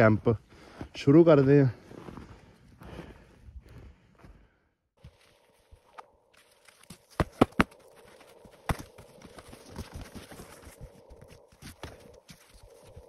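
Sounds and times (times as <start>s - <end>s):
boots crunching in snow: 5.0s - 13.0s.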